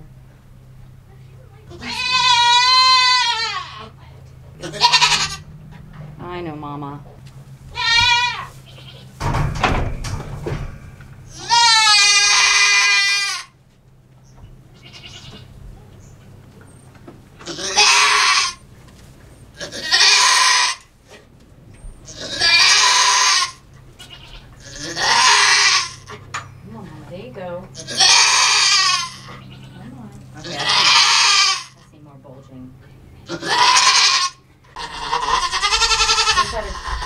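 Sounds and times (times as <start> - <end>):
goat bleating: 1.7 - 4.0, 4.6 - 5.6, 7.7 - 9.2, 11.3 - 13.6, 14.7 - 15.6, 17.4 - 18.7, 19.6 - 20.9, 22.0 - 26.3, 27.7 - 31.9, 33.2 - 37.0
hoarse breathy goat cries: 1.7 - 4.0, 4.6 - 5.6, 7.7 - 9.1, 11.3 - 13.6, 17.4 - 18.7, 19.6 - 20.9, 22.0 - 26.2, 27.8 - 31.8, 33.2 - 37.0
thump and rustle in straw: 8.5 - 10.8.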